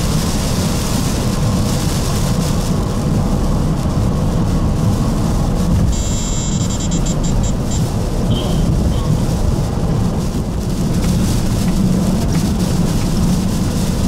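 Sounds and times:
heavy rain and road spray: 0.0s - 14.0s
tyre and wind rumble: 0.0s - 14.0s
high electronic beeps: 5.9s - 8.6s.

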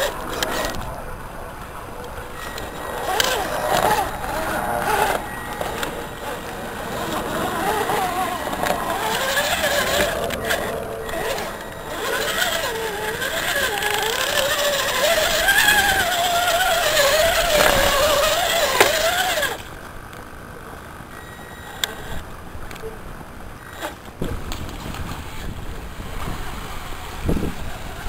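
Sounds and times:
electric motor and gearbox whining: 0.0s - 22.2s.

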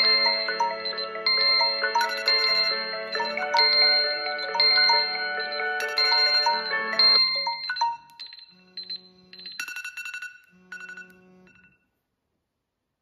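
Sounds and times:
chime phrases: 0.0s - 9.6s
phone alarm tones: 0.0s - 11.8s
phone vibration buzzing: 0.0s - 11.8s.

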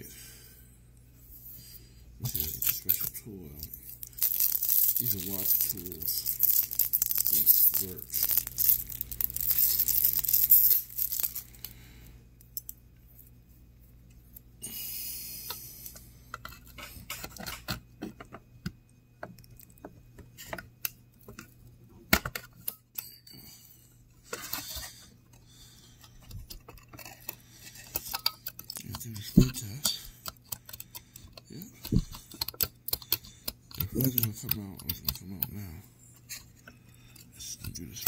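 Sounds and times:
rustling handling noise: 2.2s - 11.9s.

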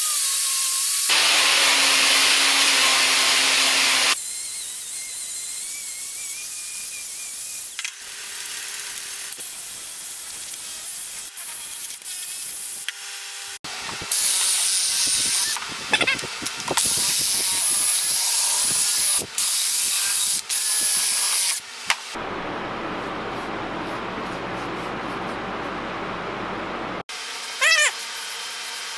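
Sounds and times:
angle grinder on metal: 0.0s - 12.9s, 13.8s - 21.6s
sandpaper rubbing on metal: 9.4s - 12.8s.

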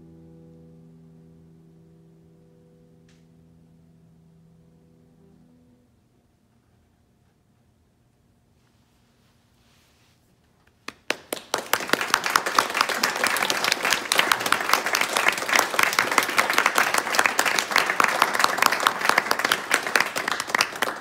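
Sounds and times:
close hands clapping: 10.6s - 21.0s
audience applauding: 10.9s - 21.0s.

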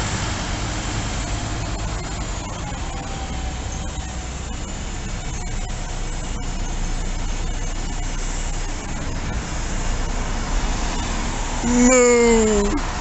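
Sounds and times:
bus driving past: 0.0s - 5.4s.

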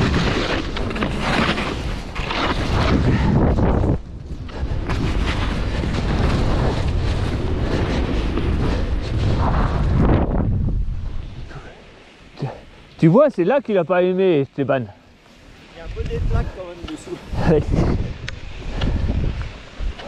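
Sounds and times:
skis scraping on packed snow: 0.0s - 11.7s, 14.6s - 20.0s
wind buffeting microphone: 2.0s - 11.7s, 15.8s - 20.0s.

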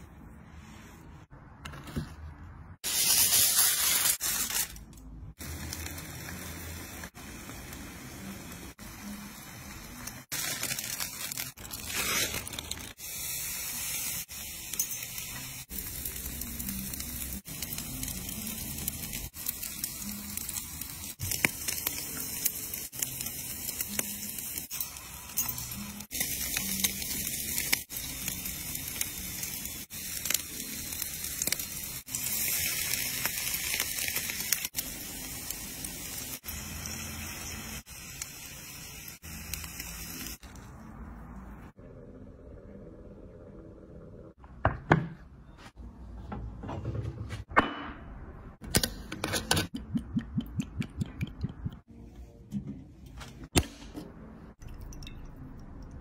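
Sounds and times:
meat fat sizzling on grill: 2.8s - 40.7s.

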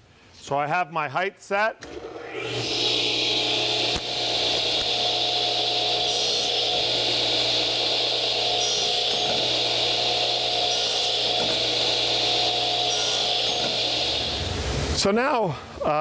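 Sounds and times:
saw motor hum and blade whine: 2.1s - 14.6s
saw cutting hiss: 3.1s - 15.1s.

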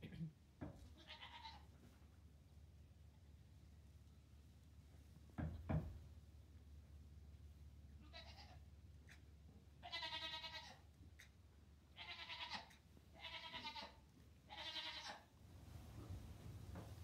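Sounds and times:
goat kid bleating: 0.9s - 1.7s, 7.9s - 9.2s, 9.8s - 11.3s, 11.9s - 15.3s.

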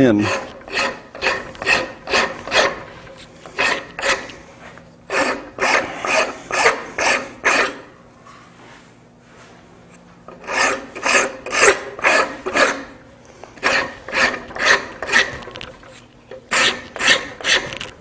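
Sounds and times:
hand rasp cutting wood: 0.0s - 4.4s, 5.1s - 7.9s, 10.3s - 12.9s, 13.6s - 15.5s, 16.5s - 17.9s.

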